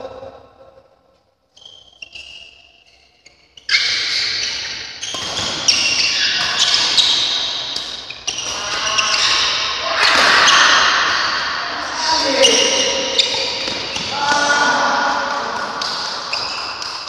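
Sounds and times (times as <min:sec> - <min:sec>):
rackets hitting shuttlecock: 0:03.7 - 0:11.8, 0:12.5 - 0:17.0.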